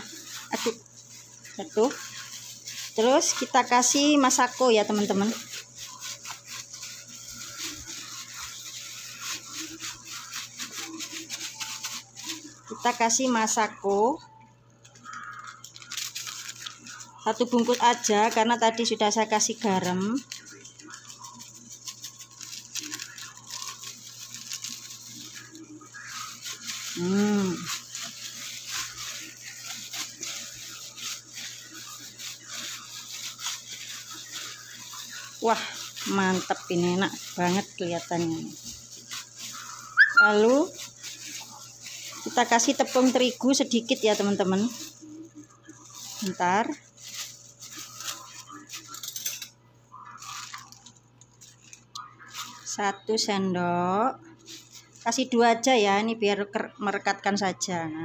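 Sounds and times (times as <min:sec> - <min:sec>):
scratchy crackles: 0:00.0 - 0:13.9, 0:14.8 - 0:52.8
wet mash squishing: 0:00.0 - 0:52.9.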